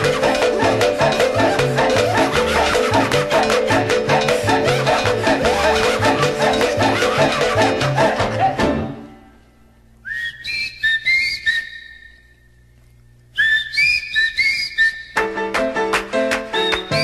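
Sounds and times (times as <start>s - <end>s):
salsa band music: 0.0s - 9.0s
person whistling: 10.0s - 12.5s, 13.3s - 15.3s, 16.6s - 17.0s.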